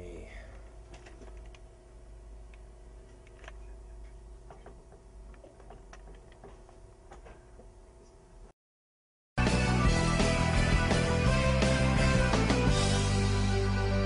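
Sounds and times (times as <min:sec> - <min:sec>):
low steady hum: 0:00.0 - 0:08.5.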